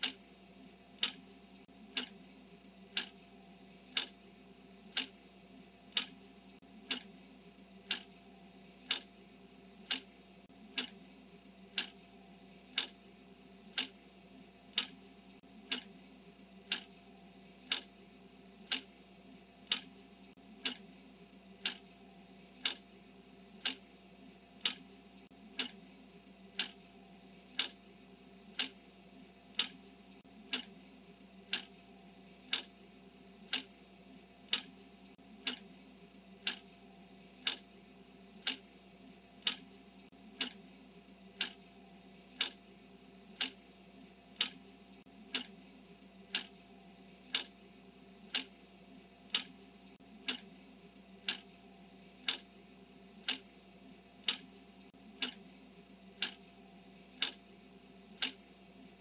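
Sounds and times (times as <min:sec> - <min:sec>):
timer ticking: 0:00.0 - 0:01.3, 0:01.9 - 0:02.2, 0:02.9 - 0:03.2, 0:03.9 - 0:04.2, 0:04.9 - 0:07.2, 0:07.8 - 0:08.2, 0:08.8 - 0:09.1, 0:09.8 - 0:11.0, 0:11.7 - 0:13.0, 0:13.7 - 0:16.0, 0:16.6 - 0:18.0, 0:18.6 - 0:21.0, 0:21.6 - 0:23.0, 0:23.6 - 0:25.9, 0:26.5 - 0:27.8, 0:28.5 - 0:30.8, 0:31.4 - 0:32.7, 0:33.4 - 0:35.8, 0:36.4 - 0:37.7, 0:38.4 - 0:38.8, 0:39.4 - 0:40.7, 0:41.4 - 0:42.6, 0:43.3 - 0:45.6, 0:46.2 - 0:47.6, 0:48.2 - 0:50.6, 0:51.2 - 0:52.6, 0:53.2 - 0:55.5, 0:56.1 - 0:57.4, 0:58.1 - 0:59.0
faint steady hum: 0:00.0 - 0:59.0.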